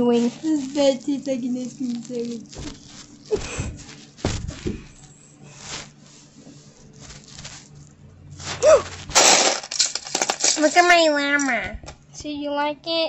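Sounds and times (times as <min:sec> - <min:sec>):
rustling of plush toys and bedding: 0:00.0 - 0:09.4.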